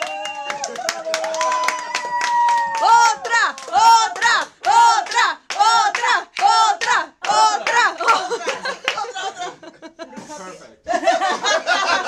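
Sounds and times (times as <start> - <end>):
hand claps: 0.0 - 9.1
voices chanting: 3.0 - 8.3.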